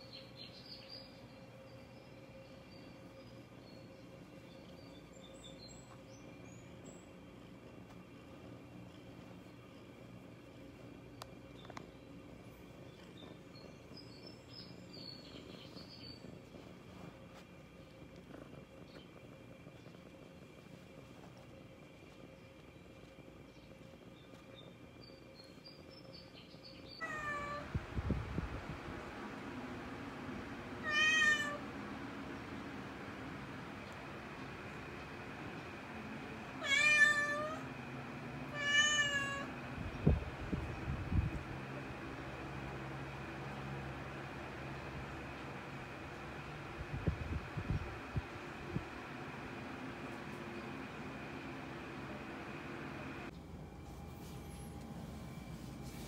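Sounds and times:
cat purring: 15.5 - 24.4
cat meowing: 27.0 - 27.7, 30.8 - 31.6, 36.6 - 37.7, 38.5 - 39.5.

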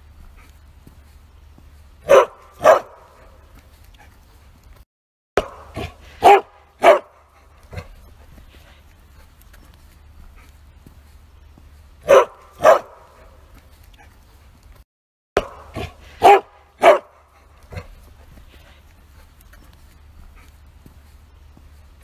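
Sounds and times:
dog barking: 2.0 - 3.4, 5.4 - 8.0, 12.0 - 13.4, 15.4 - 18.0.

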